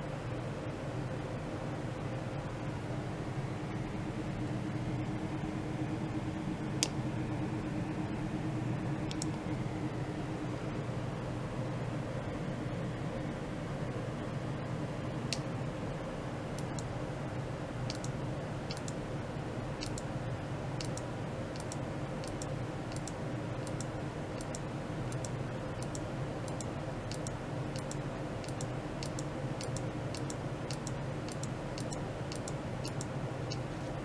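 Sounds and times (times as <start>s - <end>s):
low equipment hum: 0.0s - 34.0s
sharp high-pitched ticks: 17.9s - 18.1s, 18.7s - 19.0s, 19.8s - 20.1s, 20.8s - 21.0s, 21.6s - 33.6s.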